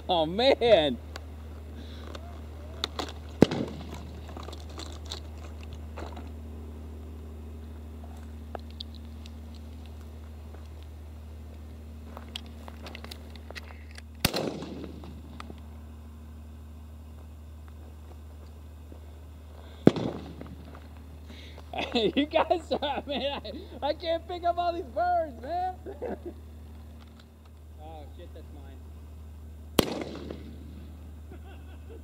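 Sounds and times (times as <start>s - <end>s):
shotgun shot with echo: 3.4s - 3.9s, 14.2s - 15.1s, 19.8s - 20.4s, 29.8s - 30.7s.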